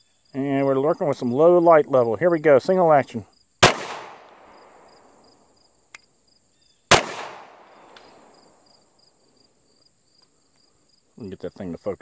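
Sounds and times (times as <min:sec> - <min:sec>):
pistol shot echoing: 0:03.6 - 0:05.2, 0:06.9 - 0:08.4.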